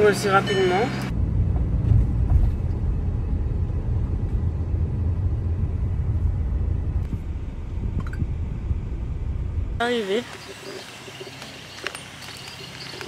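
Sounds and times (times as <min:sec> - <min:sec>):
car road rumble: 0:00.0 - 0:13.0.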